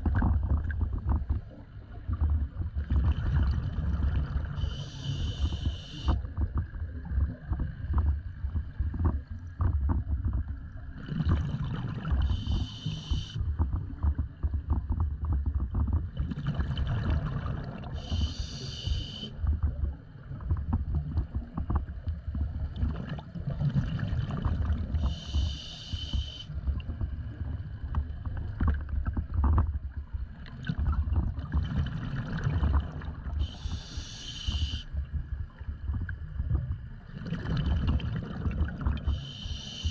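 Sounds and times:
gurgling exhaled bubbles: 0.0s - 34.9s, 35.8s - 39.9s
hissing regulator breath: 4.6s - 6.2s, 12.3s - 13.4s, 18.0s - 19.3s, 25.0s - 26.5s, 33.4s - 34.9s, 39.1s - 39.9s.

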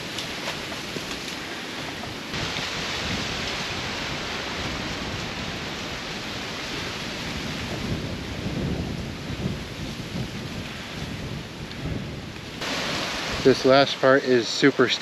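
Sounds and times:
wind buffeting microphone: 0.0s - 14.1s
wind rushing: 2.3s - 14.2s.

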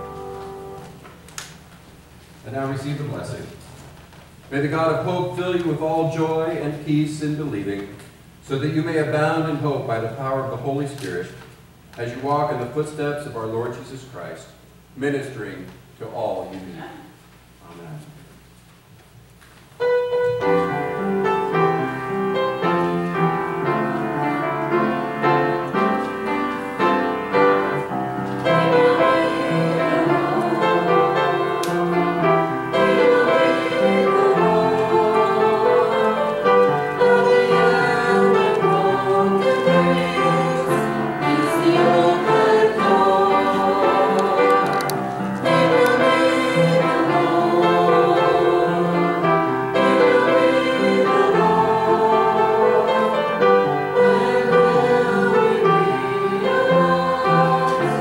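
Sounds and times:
voices singing church music: 0.0s - 1.2s, 20.1s - 58.0s
piano: 0.0s - 11.8s, 19.6s - 58.0s.

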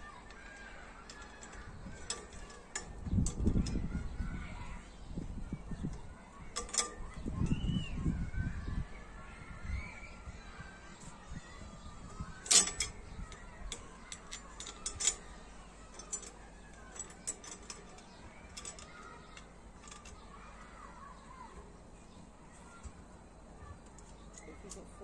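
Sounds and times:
metal clinks of hardware: 1.1s - 3.9s, 6.6s - 7.1s, 12.4s - 15.3s, 15.9s - 20.2s.

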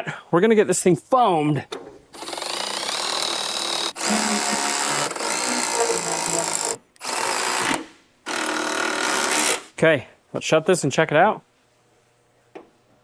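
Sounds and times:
cordless driver running bolts: 2.2s - 9.6s.

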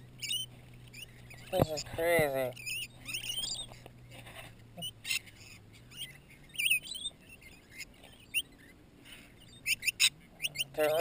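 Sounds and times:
lorikeets chirping: 0.0s - 11.0s
sharp bird squawks: 4.8s - 11.0s.

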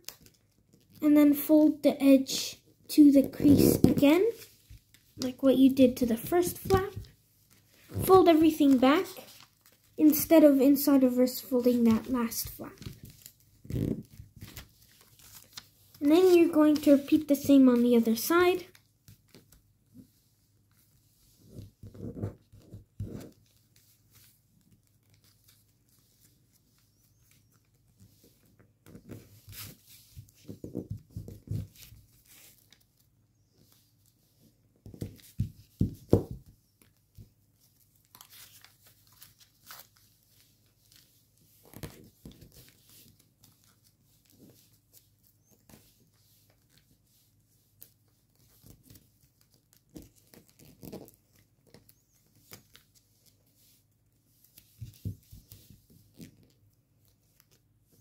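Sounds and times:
foil paper crinkling: 11.7s - 17.2s.

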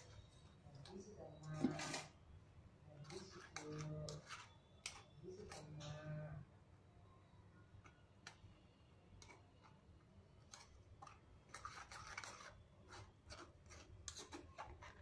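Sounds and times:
spoon scraping metal strainer: 1.4s - 2.2s, 10.4s - 15.0s.

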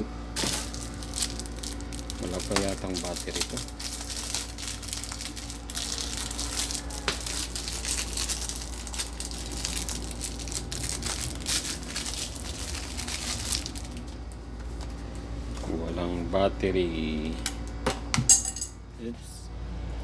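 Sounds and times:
plastic wrapping crinkling: 0.4s - 15.6s.

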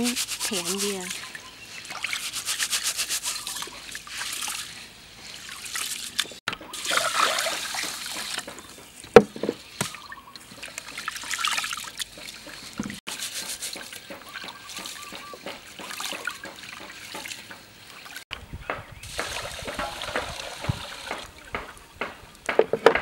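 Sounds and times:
rice rubbed in water: 0.0s - 8.4s, 10.6s - 17.5s
water trickling and splashing: 0.0s - 9.0s, 9.6s - 18.3s, 19.0s - 22.4s.

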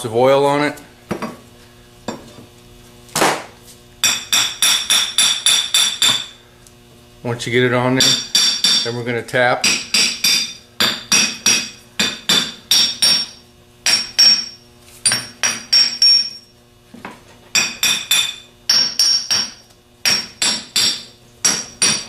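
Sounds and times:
hammer tapping metal: 4.0s - 6.4s, 8.0s - 9.0s, 9.6s - 16.5s, 17.5s - 22.0s.

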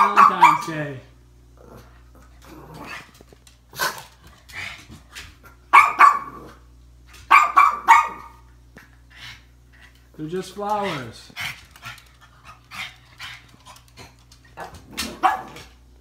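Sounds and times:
dog barking: 0.0s - 0.8s, 5.7s - 6.4s, 7.3s - 8.4s, 15.1s - 15.6s.

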